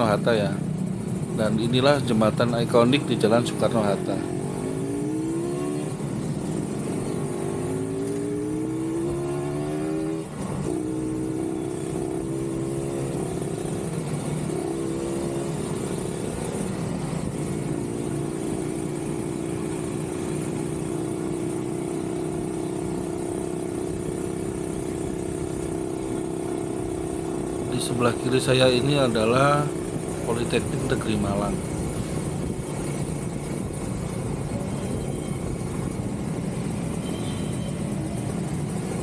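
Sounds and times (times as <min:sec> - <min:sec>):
motorcycle engine accelerating: 0:00.0 - 0:39.0.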